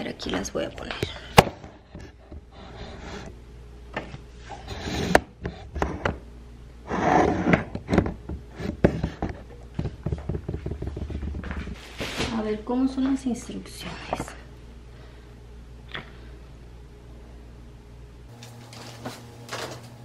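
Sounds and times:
rustling scrape of plastic wrap: 18.3s - 20.0s.

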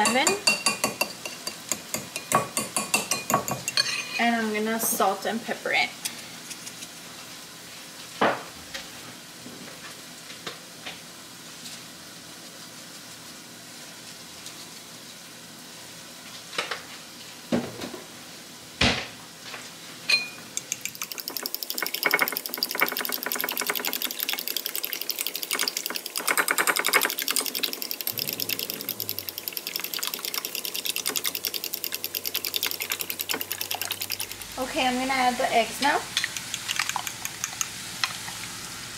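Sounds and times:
whisk beating in glass bowl: 0.0s - 4.0s, 20.6s - 34.9s, 36.1s - 38.2s.

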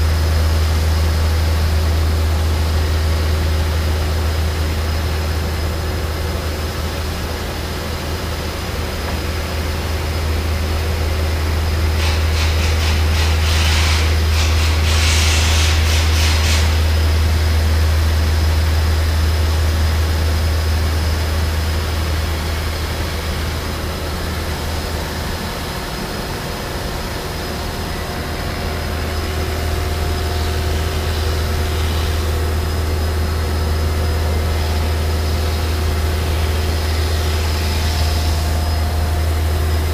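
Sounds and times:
wire saw machine hum: 0.0s - 39.9s
hiss: 11.5s - 17.6s, 21.8s - 39.9s.

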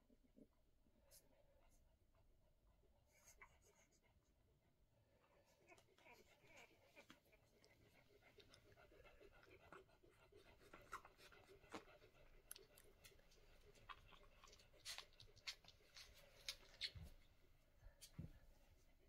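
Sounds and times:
faint clicks and rustles: 5.4s - 19.0s.

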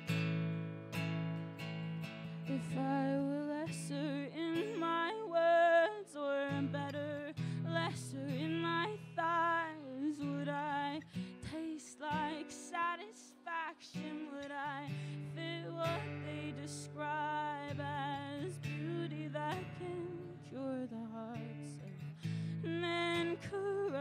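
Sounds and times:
acoustic guitar strumming: 0.0s - 24.0s
woman singing: 2.4s - 24.0s.

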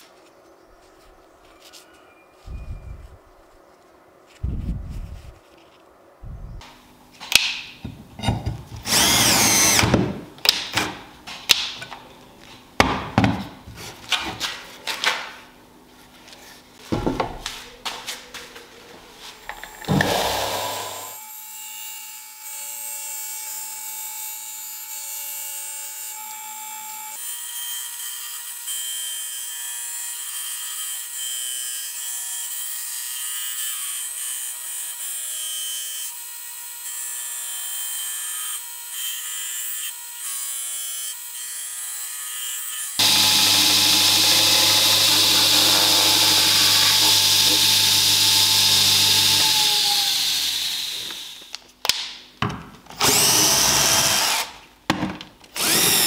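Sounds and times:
belt grinder grinding steel: 8.8s - 9.8s, 42.8s - 51.5s, 55.6s - 56.0s
power drill driving screws: 8.8s - 10.0s, 19.5s - 21.2s, 43.0s - 51.5s, 53.0s - 54.6s, 55.5s - 56.0s.

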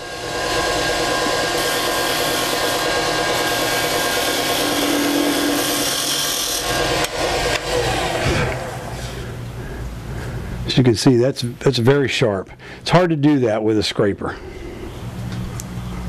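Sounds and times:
gouge cutting spinning wood: 0.0s - 9.3s
lathe running hum: 0.0s - 10.7s.

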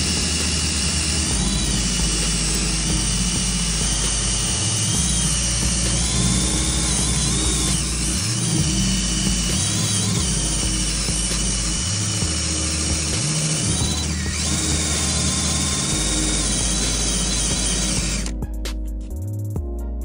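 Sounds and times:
power drill with eraser wheel: 0.0s - 18.3s.

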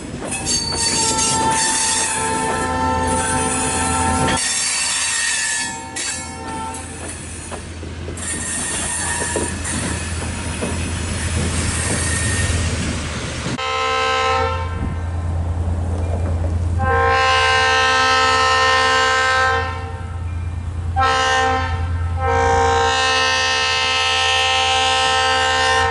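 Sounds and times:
freight cars rolling on rails: 0.0s - 13.6s, 14.8s - 20.9s
wheels squealing: 0.3s - 12.9s
locomotive horn blasts: 0.4s - 7.0s, 13.6s - 15.0s, 16.8s - 20.3s, 20.9s - 25.9s.

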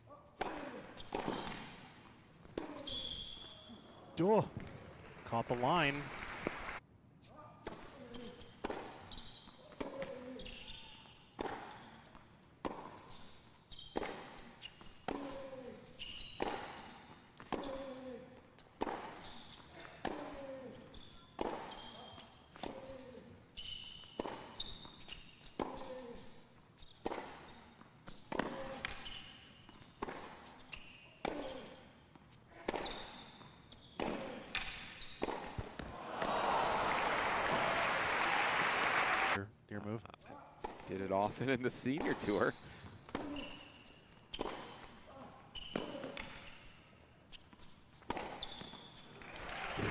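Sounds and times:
racket hitting tennis ball: 0.4s - 2.9s, 8.6s - 9.1s, 11.4s - 13.2s, 13.9s - 15.5s, 16.4s - 18.0s, 18.7s - 20.4s, 21.4s - 21.8s, 24.1s - 25.9s, 27.0s - 29.1s, 29.7s - 30.5s, 31.2s - 31.8s, 32.6s - 33.1s, 34.0s - 36.3s, 41.9s - 42.4s, 44.3s - 45.0s, 47.5s - 48.4s
shoe squeaks on court: 0.4s - 4.2s, 7.2s - 35.9s, 40.6s - 49.9s
crowd applause: 5.0s - 6.8s, 36.0s - 39.4s, 49.2s - 49.9s.

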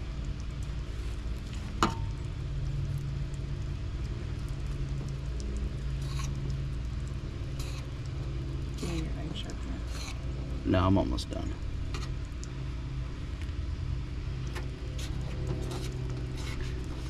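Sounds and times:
knife slicing scrapes: 9.8s - 10.2s.

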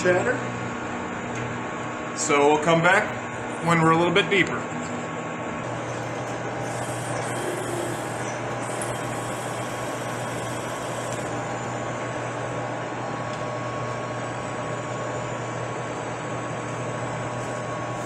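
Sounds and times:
metal lathe humming: 5.6s - 11.6s.

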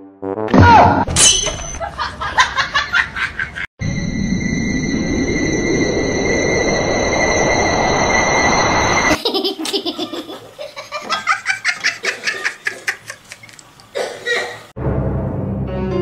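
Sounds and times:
person laughing hard: 9.2s - 13.4s.

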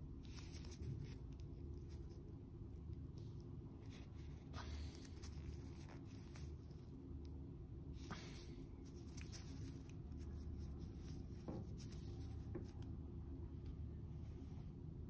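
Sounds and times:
steady low hum: 0.0s - 15.0s
gloved hands rustling: 8.0s - 12.8s.

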